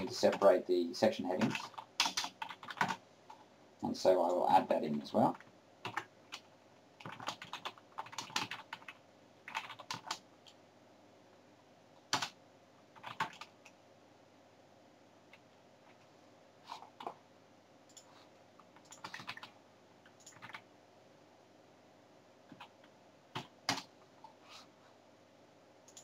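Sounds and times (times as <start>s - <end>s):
computer keyboard typing: 0.0s - 0.6s, 1.3s - 3.4s, 5.2s - 10.6s, 12.1s - 13.8s, 17.8s - 20.7s, 22.5s - 23.9s.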